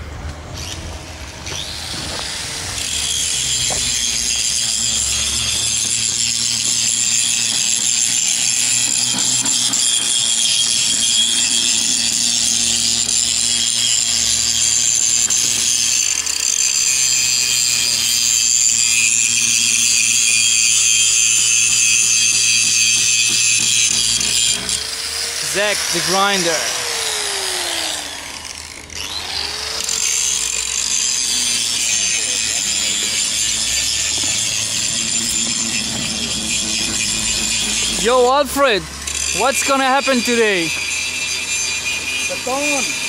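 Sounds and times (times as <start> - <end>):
angle grinder cutting steel: 0.5 - 43.0.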